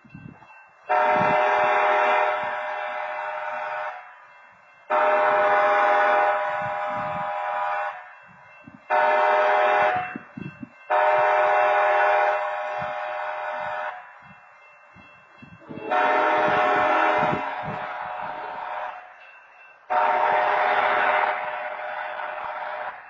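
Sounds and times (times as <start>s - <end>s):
locomotive air horn blasts: 0.9s - 4.0s, 4.9s - 8.0s, 8.9s - 10.2s, 10.9s - 14.0s, 15.6s - 19.1s, 19.9s - 23.0s.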